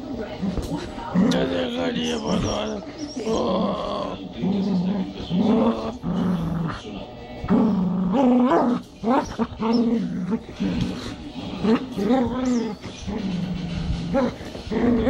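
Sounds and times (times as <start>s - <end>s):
dog growling: 0.3s - 15.0s.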